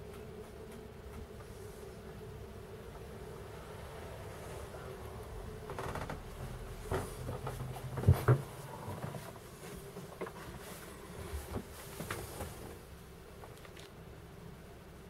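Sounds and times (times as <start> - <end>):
faint low hum: 0.0 - 15.0
light knocks and bumps: 5.6 - 12.8.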